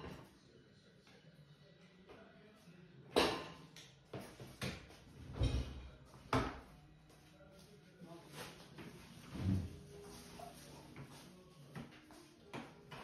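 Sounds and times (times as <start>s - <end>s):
dishes and racks clacking: 4.6s - 6.6s.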